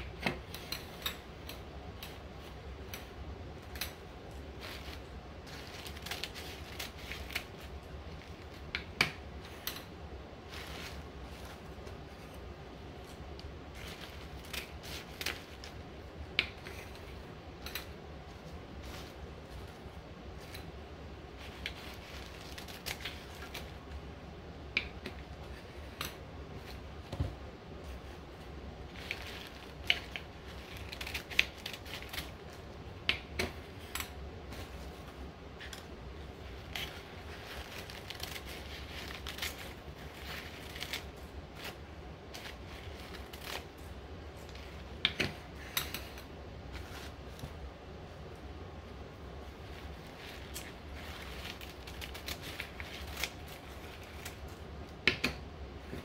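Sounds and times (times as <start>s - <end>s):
scissors snipping paper: 0.1s - 20.8s, 28.9s - 34.9s, 35.6s - 47.2s, 49.8s - 55.4s
paper crinkling: 0.4s - 24.0s, 24.8s - 48.2s, 48.9s - 54.9s.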